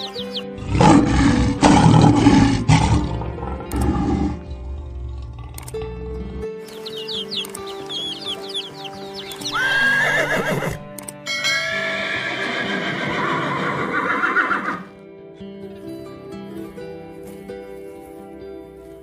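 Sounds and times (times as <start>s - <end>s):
chicks peeping: 0.0s - 0.5s, 6.6s - 9.6s
background music: 0.0s - 19.0s
horses whinnying: 9.4s - 10.9s, 11.9s - 14.9s.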